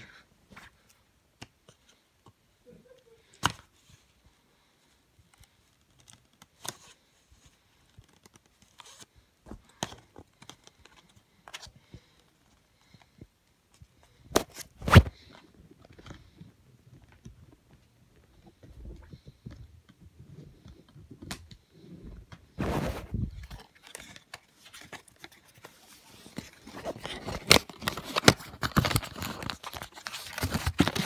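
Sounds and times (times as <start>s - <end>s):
scissors cutting cardboard box: 26.8s - 31.0s.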